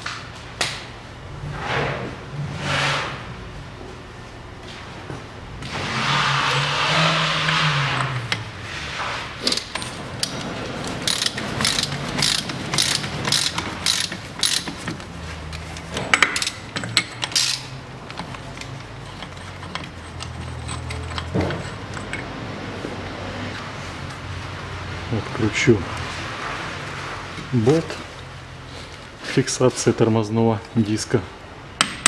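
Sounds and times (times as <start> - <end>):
ratchet wrench clicking: 11.0 - 14.8, 16.1 - 21.3.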